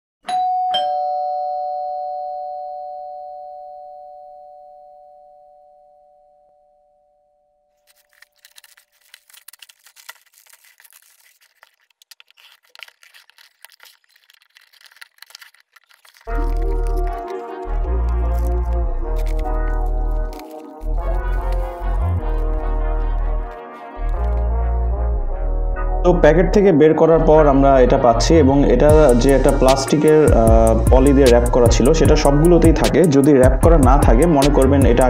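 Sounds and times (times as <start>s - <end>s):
plastic packaging crinkling: 7.8s - 24.5s.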